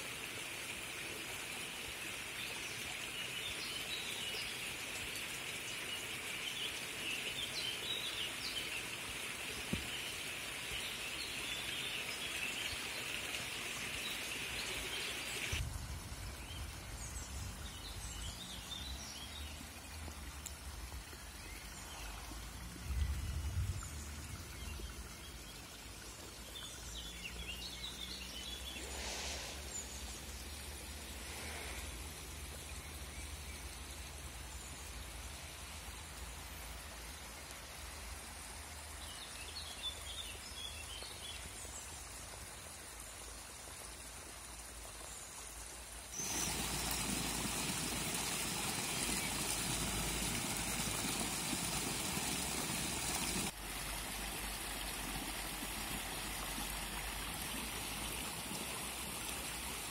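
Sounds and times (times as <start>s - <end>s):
water rushing through creek: 0.0s - 59.9s
low rumbling: 22.4s - 25.2s.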